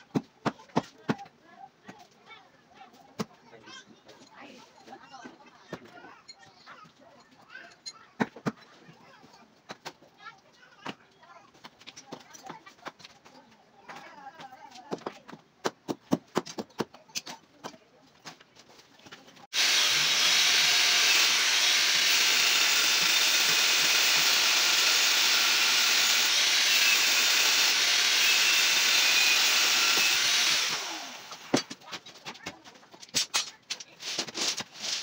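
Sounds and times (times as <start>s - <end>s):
power tool hissing: 19.5s - 31.6s.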